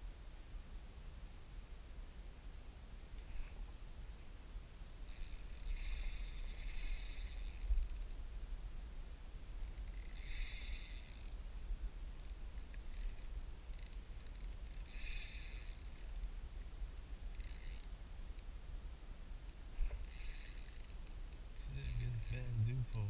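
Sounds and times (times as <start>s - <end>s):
fishing reel whirring: 5.1s - 8.1s, 9.6s - 11.4s, 12.2s - 16.3s, 17.3s - 18.0s, 20.0s - 21.2s, 21.8s - 23.0s.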